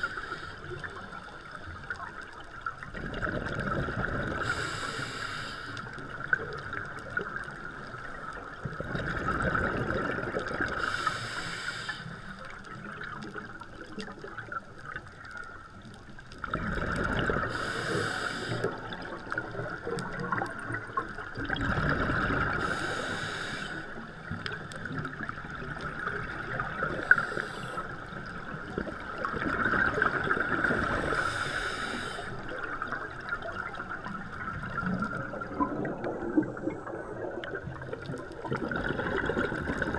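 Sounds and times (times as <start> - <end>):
regulator inhale hiss: 0.0 - 1.1, 4.4 - 6.0, 10.7 - 12.6, 17.4 - 19.0, 22.4 - 24.2, 26.8 - 28.3, 30.6 - 32.8
exhaled air bubbling: 0.0 - 39.9.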